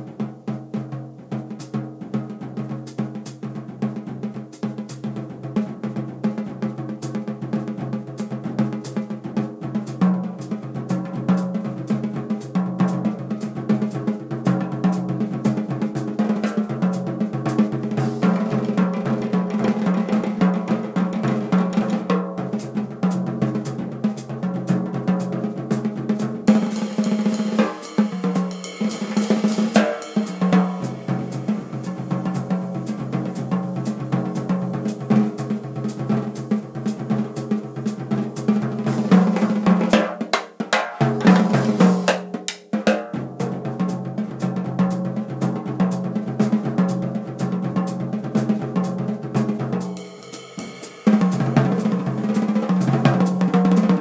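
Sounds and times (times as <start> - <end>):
drum solo on snare and toms: 0.0 - 54.0
cymbals wash: 26.5 - 40.0, 41.1 - 42.7, 49.8 - 54.0.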